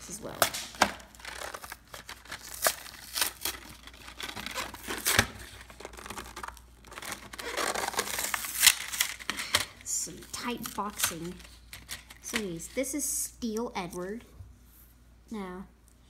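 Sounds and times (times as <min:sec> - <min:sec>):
cardboard tearing and crinkling: 0:00.3 - 0:12.2.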